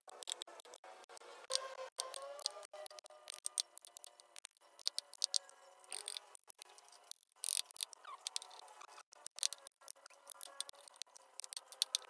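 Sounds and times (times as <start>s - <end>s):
hand tools carving wood: 1.5s - 12.0s.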